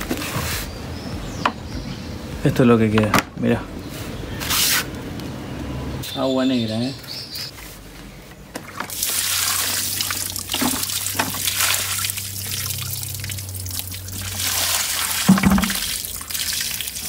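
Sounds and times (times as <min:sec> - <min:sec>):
water pouring onto soil: 0:08.9 - 0:17.0
single thump: 0:15.3 - 0:15.8.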